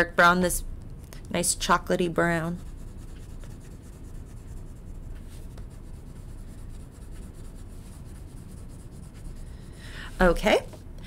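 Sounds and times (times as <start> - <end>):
crayon scratching on paper: 2.5 - 9.5.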